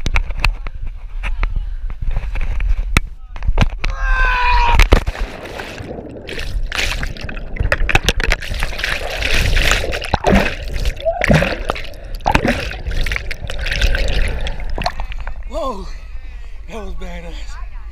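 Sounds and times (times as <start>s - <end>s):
loud splash into water: 4.8s - 15.1s
underwater bubbling and gurgling: 4.9s - 15.5s.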